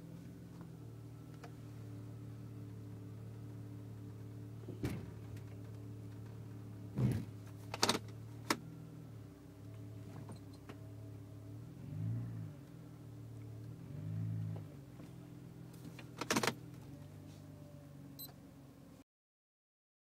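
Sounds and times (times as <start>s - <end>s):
car engine idling: 0.0s - 11.8s
sharp clicks and knocks: 16.0s - 16.6s.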